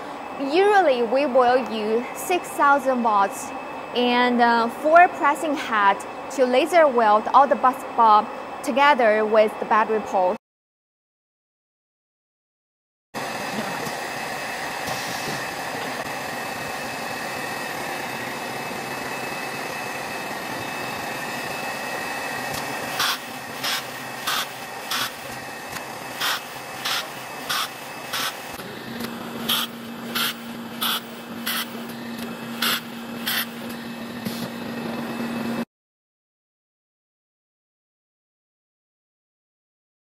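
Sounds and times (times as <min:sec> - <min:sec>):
production line humming: 0:13.2 - 0:35.7
laser welder sharp bursts: 0:22.5 - 0:31.9, 0:32.5 - 0:34.4.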